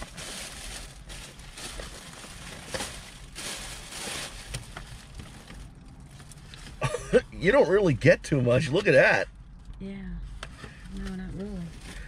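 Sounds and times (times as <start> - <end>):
cardboard packaging rustling: 0.0 - 6.8
plastic bag handled: 0.0 - 6.8.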